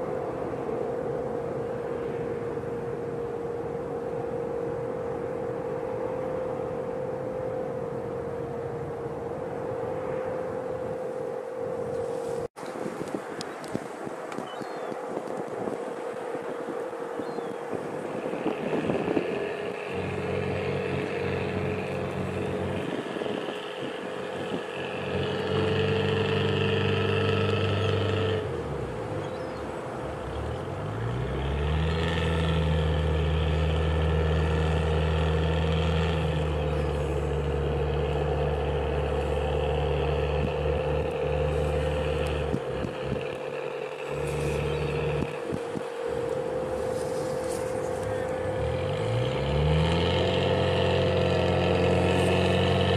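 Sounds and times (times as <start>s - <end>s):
steady whine: 0.0s - 52.9s
boat diesel engine throttling: 15.9s - 52.9s.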